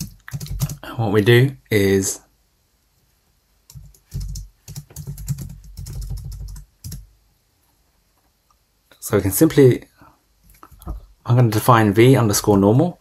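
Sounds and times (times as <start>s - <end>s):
typing on computer keyboard: 0.0s - 0.8s, 3.7s - 7.0s.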